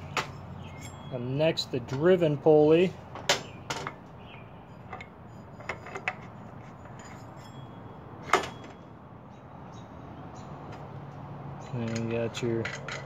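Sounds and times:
metal clank: 4.8s - 8.9s, 11.6s - 13.0s
light metal clicks: 10.7s - 13.0s.

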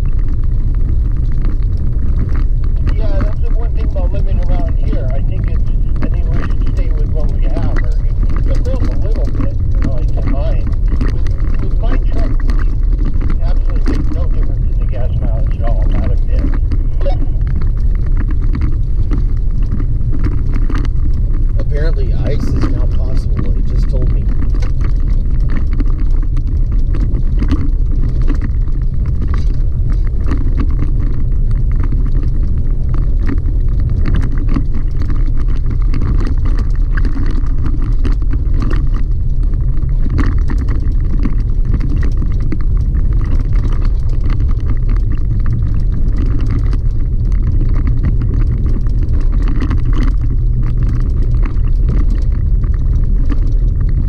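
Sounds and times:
gravel clicks and rattles: 0.0s - 54.0s
tyres and drivetrain rumble: 0.0s - 54.0s.

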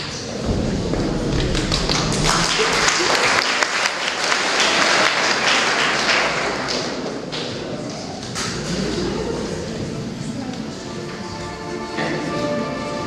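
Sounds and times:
audience applause: 0.4s - 9.8s.

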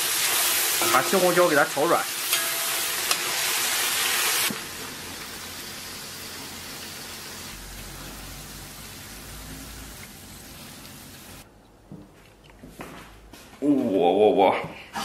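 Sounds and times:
stir-fry sizzling in a wok: 0.0s - 11.4s.

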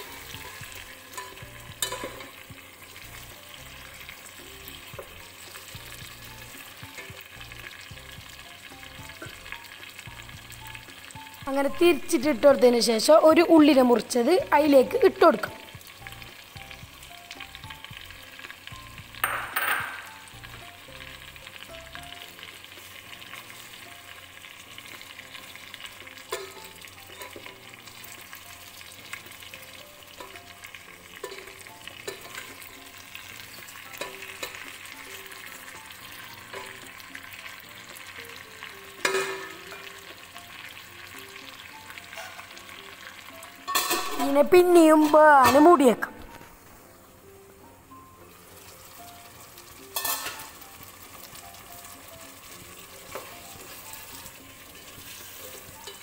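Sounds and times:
spoon stirring in a pot: 0.0s - 3.0s, 3.8s - 8.3s, 24.9s - 28.3s, 29.0s - 37.0s, 49.9s - 50.6s, 52.5s - 56.0s
chicken and onion sizzling in oil: 0.0s - 56.0s.

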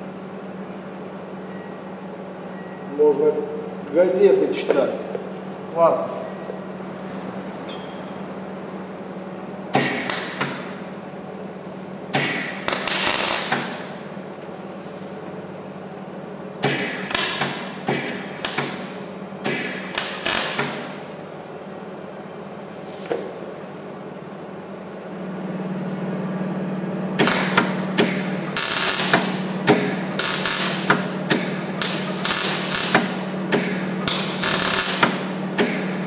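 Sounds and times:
steady low hum: 0.0s - 36.0s
welding bursts: 12.2s - 13.7s, 19.4s - 20.8s, 27.2s - 36.0s.

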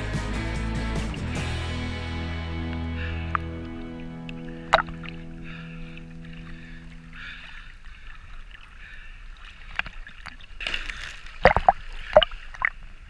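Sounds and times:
sea water lapping and sloshing: 3.1s - 13.0s.

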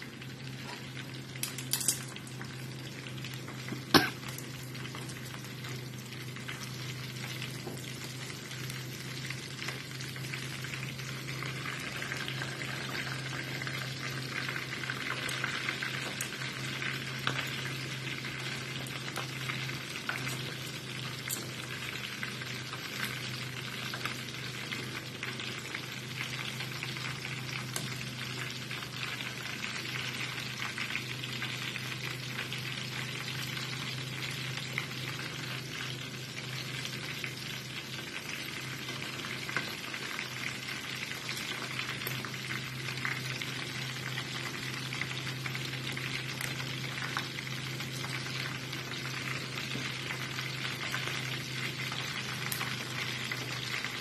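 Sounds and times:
chicken sizzling in oil: 0.0s - 54.0s
metal tongs turning food: 1.4s - 2.2s.

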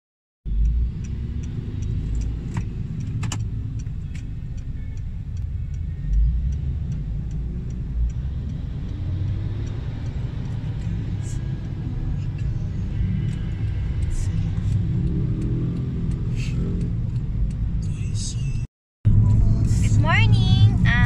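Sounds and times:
even ticking: 0.5s - 18.6s
engine and road rumble: 0.5s - 21.0s
sharp clicks: 0.6s - 4.7s.

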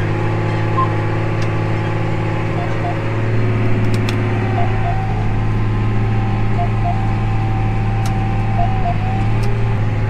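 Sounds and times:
steady whine: 0.0s - 9.5s
tractor diesel engine running: 0.0s - 10.0s.

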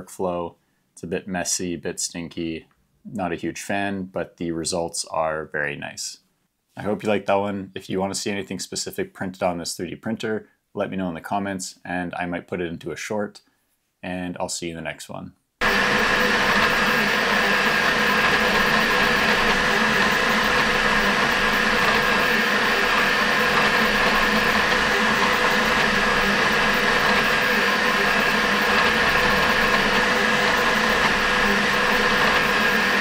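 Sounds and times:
steady whining tones: 15.6s - 33.0s.

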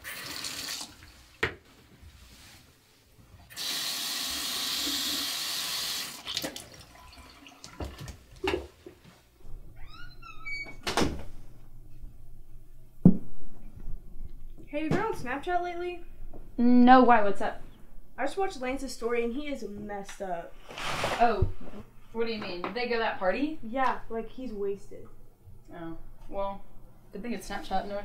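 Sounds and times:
sink tap running: 3.5s - 8.1s.

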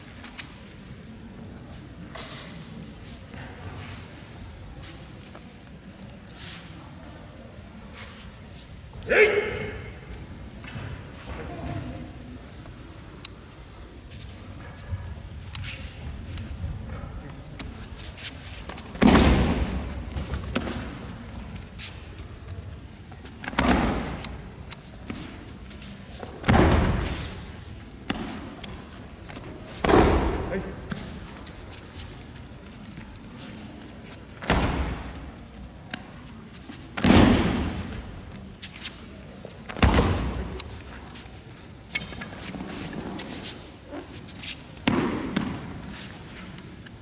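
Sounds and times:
scuffs and clicks on mat: 12.6s - 47.0s.

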